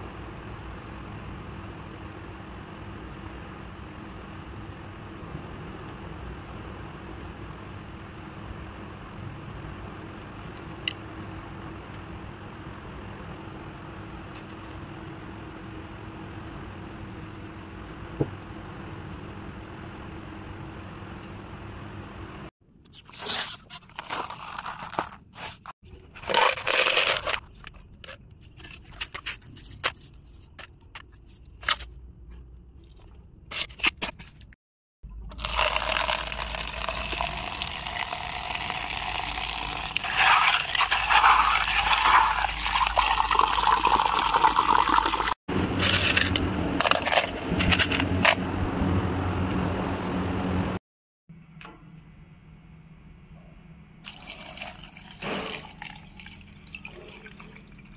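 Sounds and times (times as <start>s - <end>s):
gravel rattling into plastic bottle: 23.1s - 31.8s
gravel scraping in plastic tub: 39.9s - 42.8s, 45.7s - 48.4s.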